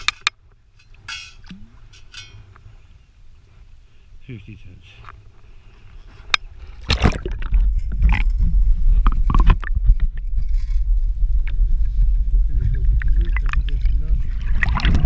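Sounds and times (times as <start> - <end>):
water splashing: 6.8 - 10.3, 12.6 - 15.0
underwater rumble: 6.8 - 15.0
bubbling underwater: 6.9 - 10.3, 11.4 - 15.0.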